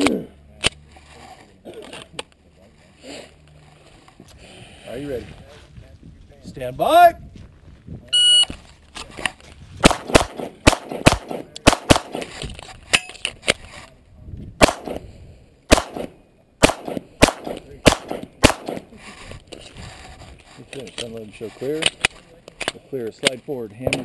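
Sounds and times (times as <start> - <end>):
pistol shots: 9.8 - 12.3, 14.6 - 15.0, 15.7 - 18.9.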